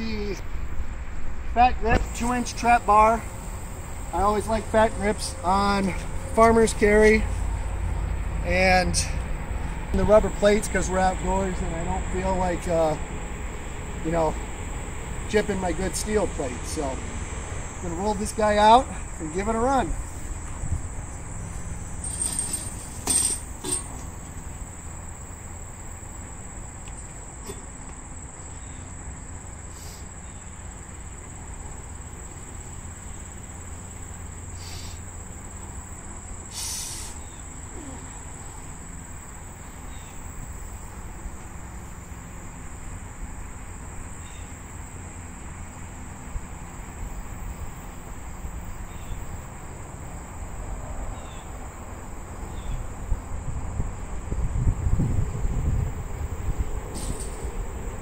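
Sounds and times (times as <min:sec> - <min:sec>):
wind rumble on microphone: 0:20.0 - 0:21.8, 0:52.7 - 0:58.0
high-pitched insect trilling: 0:29.6 - 0:40.1.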